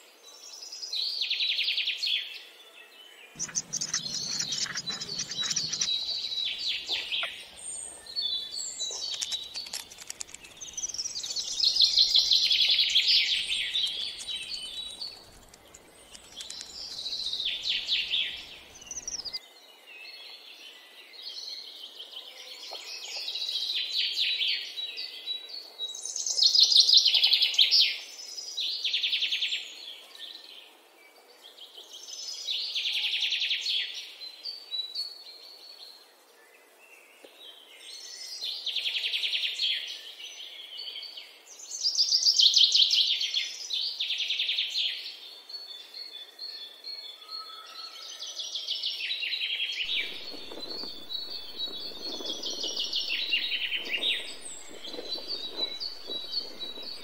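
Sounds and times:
young songbirds begging chirps: 3.4 - 19.4, 49.8 - 57.0.

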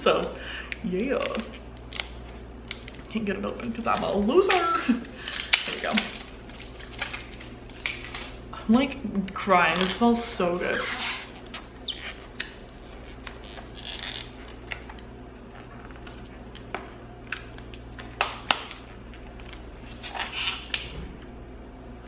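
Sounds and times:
plastic film crinkling rustle: 1.2 - 8.5.

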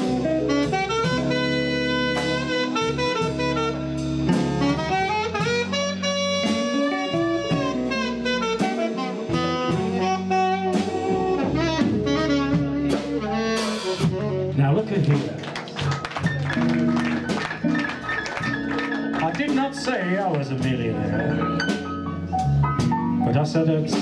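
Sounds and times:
saxophone playing jazzy melody: 0.0 - 15.0, 15.8 - 19.8
live band: 0.0 - 24.0
drums hitting: 15.0 - 24.0.

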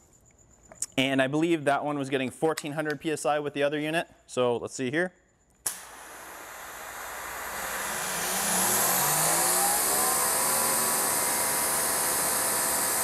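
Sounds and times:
pump motor whine: 5.7 - 13.0.

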